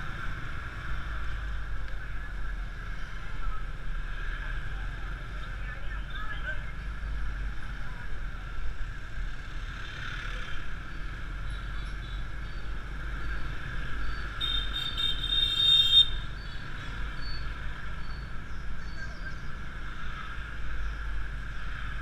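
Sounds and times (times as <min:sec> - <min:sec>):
traffic and riding noise: 0:00.0 - 0:22.0
vehicle horn: 0:14.4 - 0:16.2.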